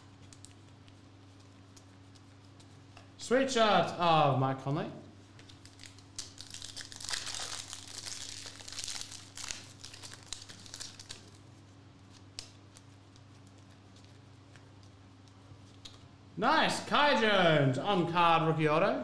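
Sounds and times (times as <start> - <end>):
soft clicks of cards handled: 0.2 - 3.2, 12.0 - 16.1
foil wrapper crinkling and tearing: 5.4 - 14.3.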